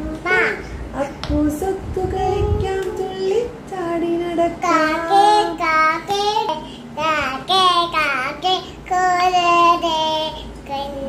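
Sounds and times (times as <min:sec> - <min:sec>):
young child singing: 0:00.0 - 0:00.8, 0:04.6 - 0:11.0.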